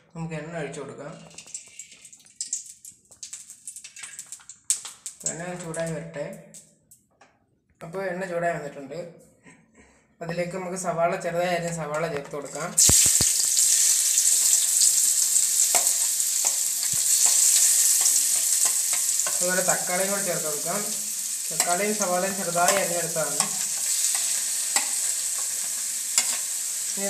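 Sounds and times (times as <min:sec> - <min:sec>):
person's voice: 0:05.2 - 0:06.4, 0:19.4 - 0:23.5
onions sizzling in hot oil: 0:12.7 - 0:27.0.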